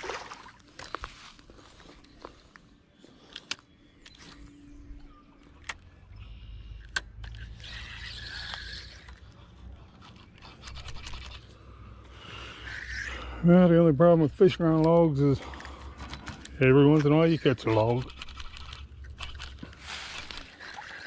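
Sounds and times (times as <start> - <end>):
fishing reel clicking: 7.2 - 9.4, 10.0 - 11.5, 17.0 - 21.0.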